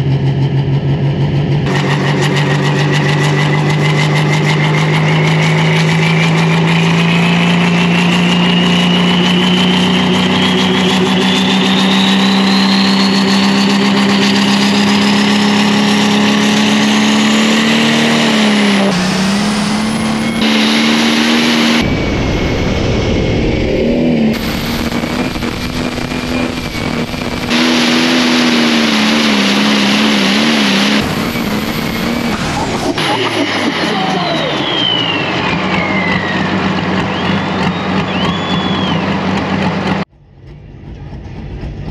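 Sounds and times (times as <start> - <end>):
diesel engine running hard: 0.0 - 41.9
turbo whistle: 6.0 - 14.8, 33.8 - 39.4.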